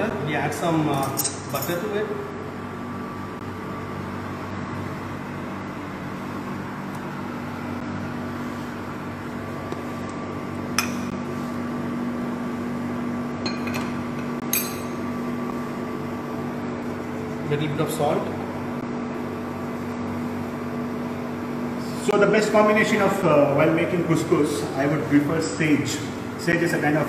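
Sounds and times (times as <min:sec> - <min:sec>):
mechanical hum: 0:00.0 - 0:27.0
kitchenware clinking against pot: 0:13.4 - 0:15.0.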